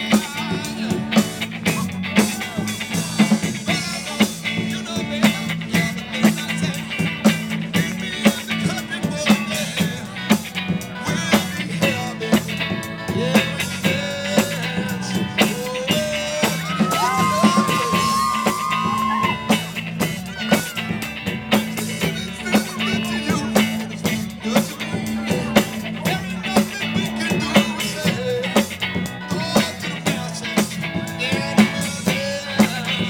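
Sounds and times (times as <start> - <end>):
drum kit beat: 0.0 - 33.0
electric guitar: 0.0 - 33.0.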